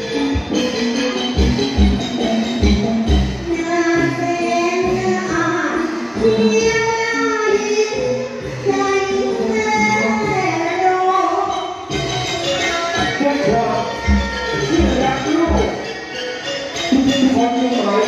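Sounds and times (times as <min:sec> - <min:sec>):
instrumental accompaniment: 0:00.0 - 0:18.0
percussion beat: 0:00.0 - 0:18.0
woman singing: 0:03.5 - 0:11.5.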